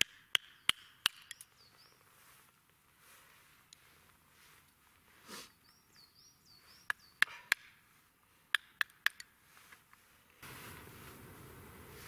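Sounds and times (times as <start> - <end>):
knife cracking wooden sticks: 0.0 - 1.5, 6.9 - 7.8, 8.5 - 9.3
small bird chirping: 0.4 - 2.3, 5.5 - 7.6.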